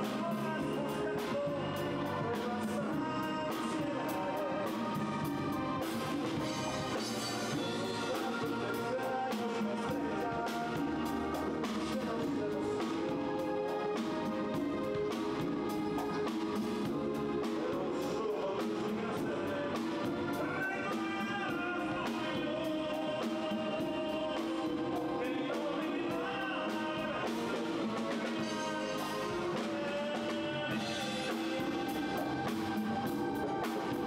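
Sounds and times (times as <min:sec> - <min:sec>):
drum kit: 0:00.0 - 0:34.0
man singing into microphone: 0:00.0 - 0:34.0
saxophones: 0:00.0 - 0:34.0.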